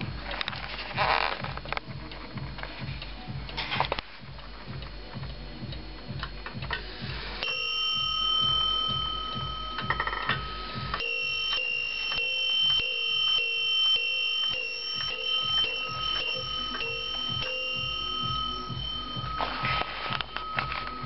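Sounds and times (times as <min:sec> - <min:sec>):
clock ticking: 0:00.0 - 0:21.0
clock bell striking: 0:07.4 - 0:21.0.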